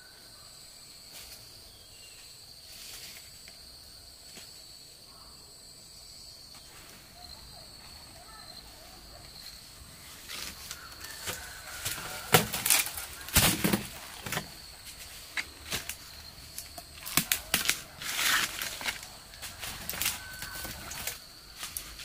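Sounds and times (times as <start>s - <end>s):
rustling in dry leaves: 1.0s - 3.5s, 6.6s - 22.0s
fruit knocking on ground: 11.1s - 14.6s.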